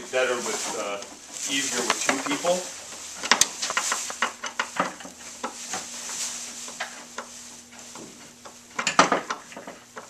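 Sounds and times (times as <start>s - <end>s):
plastic wrapping crinkling: 0.0s - 8.7s
small knocks: 3.2s - 10.0s.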